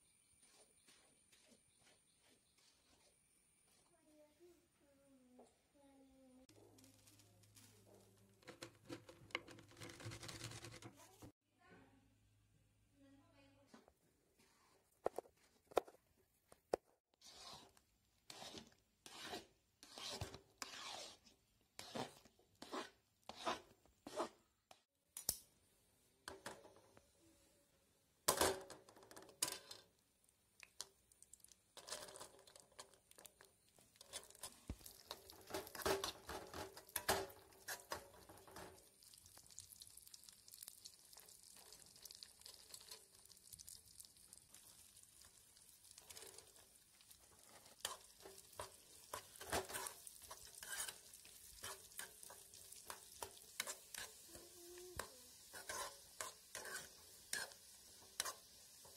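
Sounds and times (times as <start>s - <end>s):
nuts sizzling in fat: 6.5s - 8.7s, 30.6s - 58.9s
spoon scraping in a pan: 17.1s - 24.9s, 31.8s - 39.6s, 40.2s - 58.9s.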